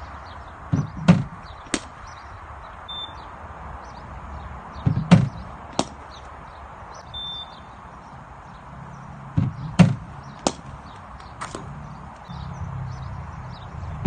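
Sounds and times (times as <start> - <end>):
cricket bat striking ball: 0.7 - 2.0, 4.8 - 6.1, 9.4 - 10.8.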